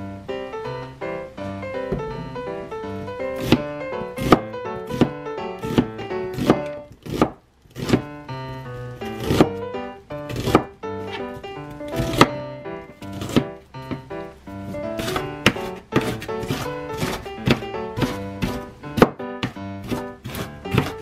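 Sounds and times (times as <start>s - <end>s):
background music: 0.0s - 21.0s
knife slicing onion on board: 3.4s - 8.1s, 9.1s - 9.6s, 10.3s - 12.4s, 13.0s - 14.1s, 14.7s - 21.0s.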